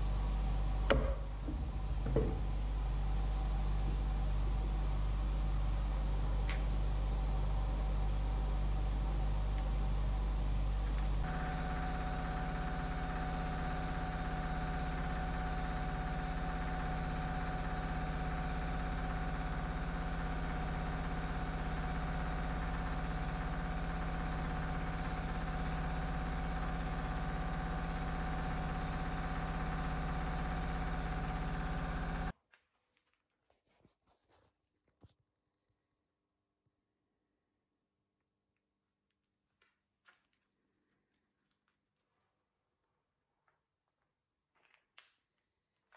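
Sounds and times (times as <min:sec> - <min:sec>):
woodworking machinery motor hum: 0:00.0 - 0:32.3.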